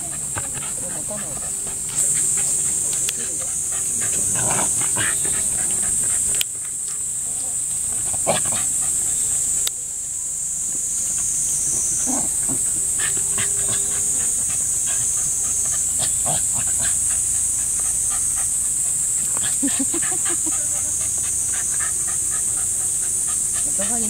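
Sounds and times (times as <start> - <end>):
steady high hiss: 0.0 - 24.0
dog vocalisations: 12.0 - 24.0.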